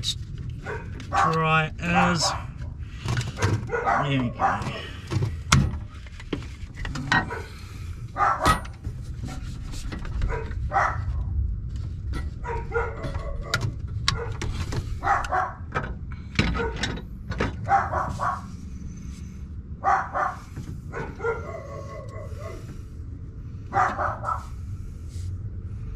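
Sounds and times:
dog barking: 0:00.6 - 0:01.4, 0:03.3 - 0:04.9, 0:07.2 - 0:07.6, 0:08.2 - 0:08.6, 0:10.2 - 0:11.3, 0:12.4 - 0:14.4, 0:15.0 - 0:15.7, 0:16.5 - 0:16.8, 0:17.6 - 0:18.6, 0:19.8 - 0:22.7, 0:23.7 - 0:24.6.

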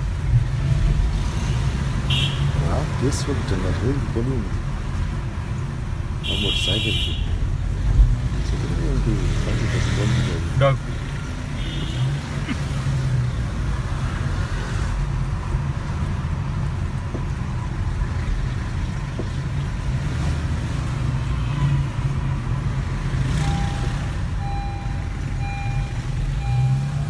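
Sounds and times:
car engine and tyres rumbling: 0:00.0 - 0:27.0
short electronic beep: 0:23.4 - 0:27.0.

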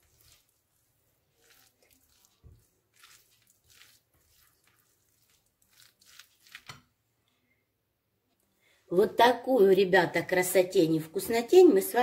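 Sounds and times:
spoon stirring salad in glass bowl: 0:00.0 - 0:07.0.

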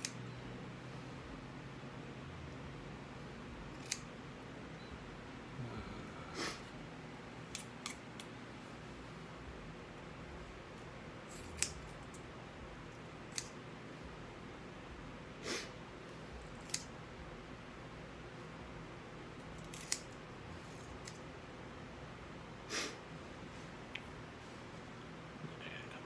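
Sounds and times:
scissors snipping hair: 0:00.0 - 0:00.2, 0:03.6 - 0:04.1, 0:07.5 - 0:08.3, 0:11.3 - 0:12.2, 0:12.9 - 0:13.6, 0:16.5 - 0:17.0, 0:19.5 - 0:21.2.

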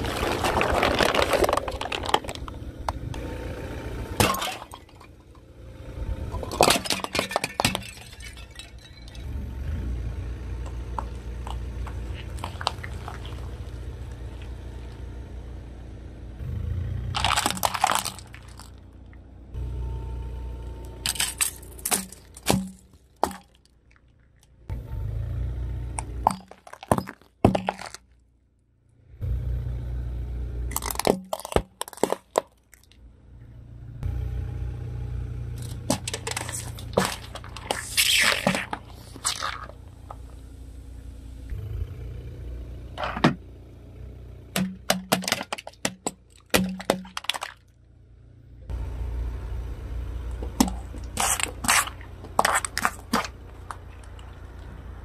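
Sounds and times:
plastic crushed under tyre: 0:00.0 - 0:03.1, 0:04.2 - 0:05.2, 0:06.3 - 0:09.1, 0:10.6 - 0:14.6, 0:17.2 - 0:18.8, 0:21.0 - 0:24.0, 0:26.0 - 0:28.2, 0:30.7 - 0:33.0, 0:35.6 - 0:40.3, 0:44.6 - 0:47.7, 0:50.4 - 0:54.4
car rolling slowly: 0:00.0 - 0:55.0.

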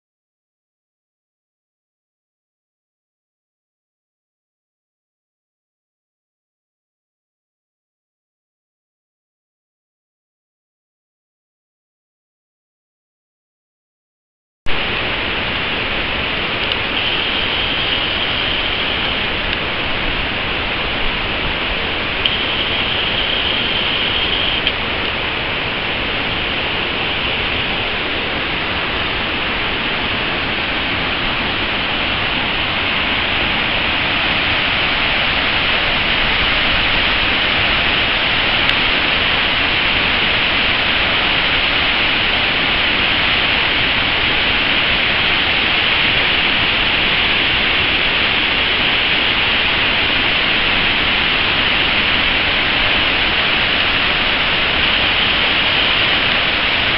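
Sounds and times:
waterfall rushing over rocks: 0:14.7 - 0:56.9.

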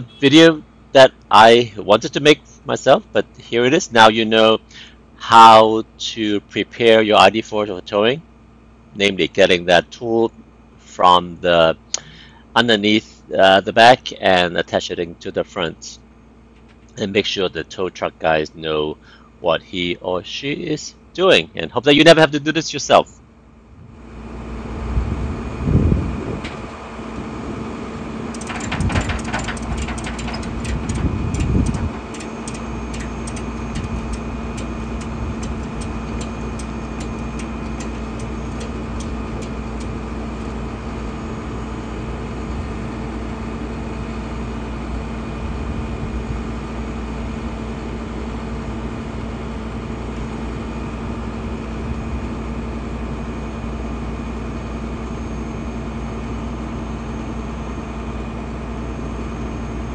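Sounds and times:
truck engine idling: 0:27.2 - 0:43.0
rattle: 0:28.3 - 0:40.6
sharp clicks: 0:28.3 - 0:40.6.

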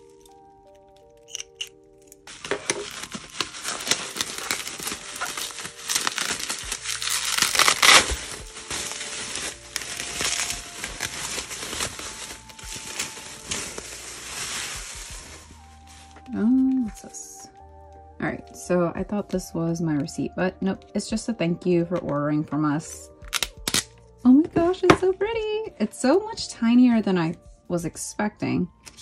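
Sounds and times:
bubble wrap crinkling: 0:00.0 - 0:17.6, 0:23.2 - 0:24.0.

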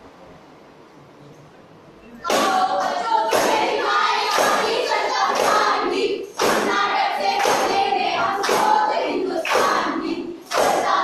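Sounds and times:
hand claps: 0:02.2 - 0:11.0
voices chanting in unison: 0:02.2 - 0:11.0.

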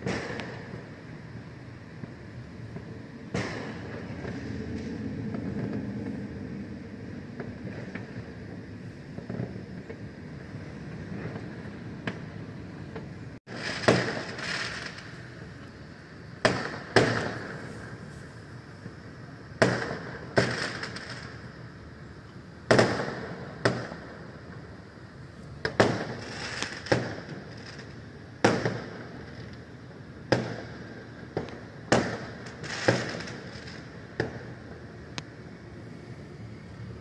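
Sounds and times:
fireworks booming: 0:00.0 - 0:35.6
fireworks crackle: 0:00.0 - 0:37.0.

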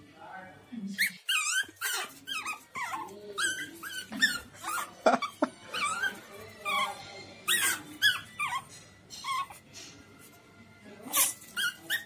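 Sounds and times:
puppy whining and yipping: 0:01.0 - 0:09.6, 0:11.1 - 0:12.0.

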